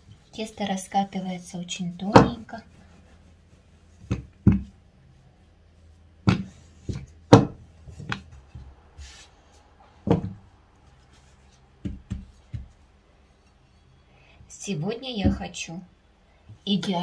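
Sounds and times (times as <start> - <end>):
rolling pin knocking on mat: 4.0 - 4.7, 6.3 - 8.7, 10.1 - 10.4, 11.8 - 12.8.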